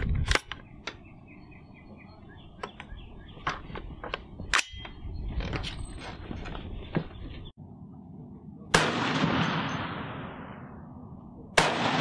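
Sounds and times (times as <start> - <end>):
birds chirping faintly: 0.4 - 7.6.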